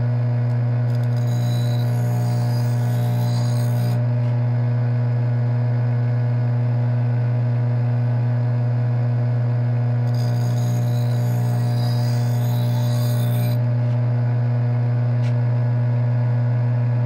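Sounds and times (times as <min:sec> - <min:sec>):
bench grinder motor humming: 0:00.8 - 0:04.4, 0:10.1 - 0:14.0.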